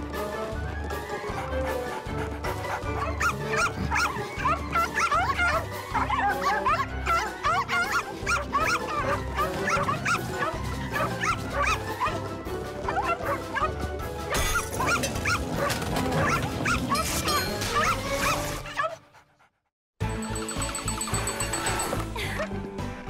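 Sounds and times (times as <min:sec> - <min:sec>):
background music: 0:00.0 - 0:19.4, 0:20.0 - 0:23.0
cartoon puppies yipping and barking: 0:02.7 - 0:19.0.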